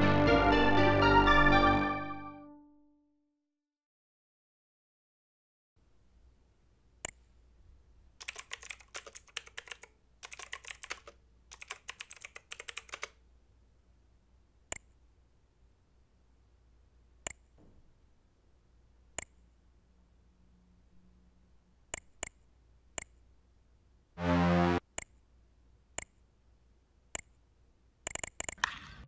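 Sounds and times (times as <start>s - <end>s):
typing on computer keyboard: 8.2s - 13.2s, 28.0s - 28.6s
faint low hum: 13.2s - 28.1s
mouse clicks: 14.7s - 15.0s, 17.2s - 17.6s, 19.1s - 19.4s, 21.9s - 23.2s, 25.0s - 25.2s, 26.0s - 26.2s, 27.1s - 27.4s, 28.0s - 28.7s.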